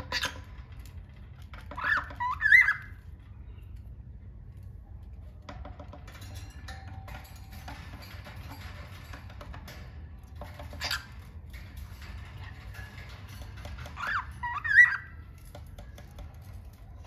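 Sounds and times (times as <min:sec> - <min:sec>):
faint clicking and scratching: 0:00.0 - 0:17.0
bird chirping and whistling: 0:01.8 - 0:03.0, 0:14.0 - 0:15.2.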